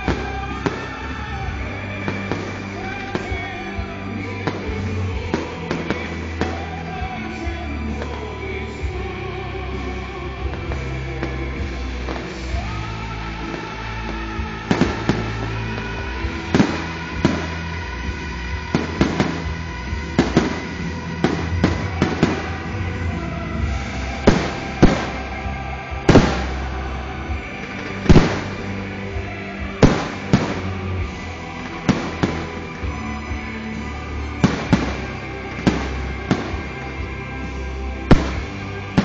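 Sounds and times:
music: 0:00.0 - 0:39.0
fireworks bangs and pops: 0:13.4 - 0:23.0, 0:23.6 - 0:29.0, 0:29.6 - 0:39.0.

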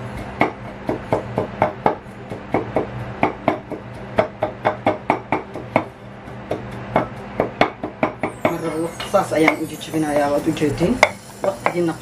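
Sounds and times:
wooden spatula knocking on wok: 0:00.1 - 0:08.4.

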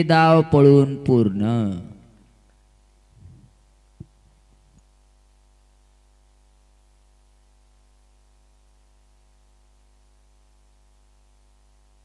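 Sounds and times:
faint electrical hum with hiss: 0:00.0 - 0:12.0.

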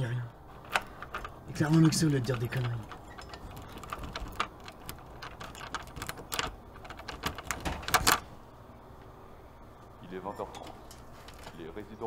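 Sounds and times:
door lock clicks and rattles: 0:00.5 - 0:08.3.

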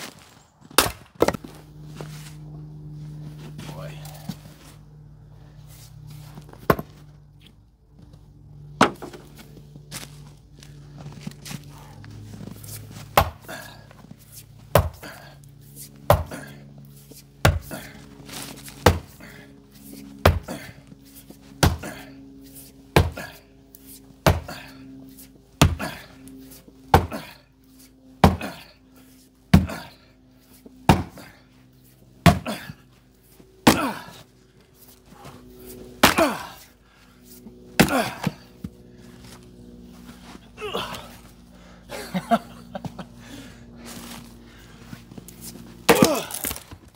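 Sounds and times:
maul striking wood: 0:00.7 - 0:01.5, 0:13.2 - 0:13.4, 0:14.7 - 0:15.0, 0:16.1 - 0:16.3, 0:17.4 - 0:17.7, 0:18.8 - 0:19.1, 0:20.2 - 0:20.5, 0:21.6 - 0:21.9, 0:23.0 - 0:23.2, 0:24.2 - 0:24.5, 0:25.6 - 0:25.9, 0:26.9 - 0:27.2, 0:28.2 - 0:28.6, 0:30.8 - 0:31.2, 0:32.2 - 0:32.6, 0:33.6 - 0:34.1, 0:36.0 - 0:36.5, 0:37.8 - 0:38.4, 0:45.9 - 0:46.6
wood round splitting: 0:00.7 - 0:01.5, 0:28.2 - 0:28.7, 0:30.9 - 0:31.2, 0:32.2 - 0:32.7, 0:33.6 - 0:34.1, 0:36.0 - 0:36.5, 0:37.8 - 0:38.4, 0:45.9 - 0:46.9.

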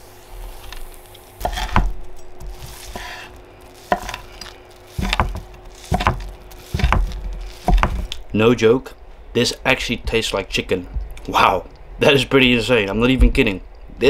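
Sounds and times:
food sizzling in a pan: 0:00.0 - 0:01.8, 0:02.5 - 0:08.0.

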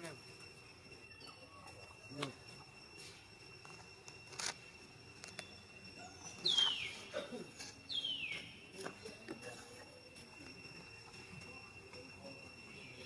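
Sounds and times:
steady high drone: 0:00.0 - 0:13.0.

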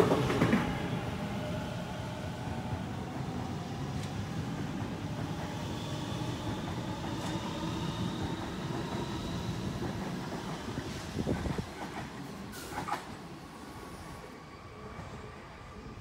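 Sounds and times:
train wheels rumbling on rail: 0:00.0 - 0:14.2.

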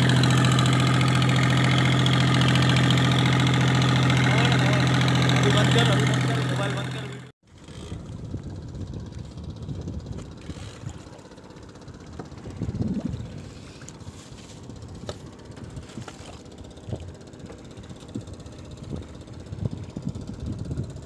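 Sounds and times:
wind buffeting the microphone: 0:07.8 - 0:11.1, 0:11.9 - 0:16.1, 0:18.1 - 0:21.0.

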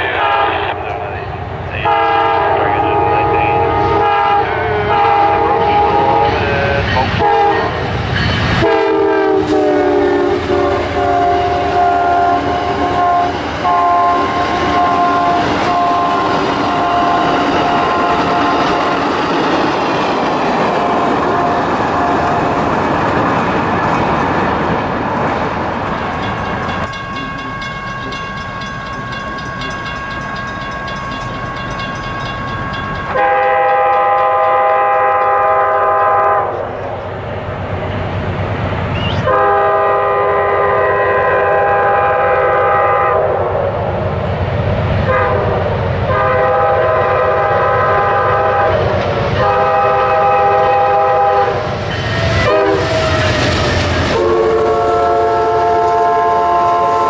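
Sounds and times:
locomotive air horn blasts: 0:00.0 - 0:00.8, 0:01.8 - 0:07.8, 0:08.6 - 0:18.8, 0:20.8 - 0:22.4, 0:33.1 - 0:36.7, 0:39.2 - 0:43.5, 0:45.1 - 0:53.2, 0:54.1 - 0:57.0
train noise: 0:00.0 - 0:57.0.

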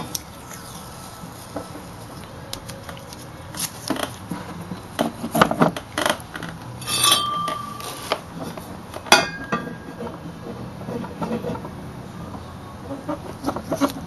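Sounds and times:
metal tubing knocks and clinks: 0:06.8 - 0:08.0.

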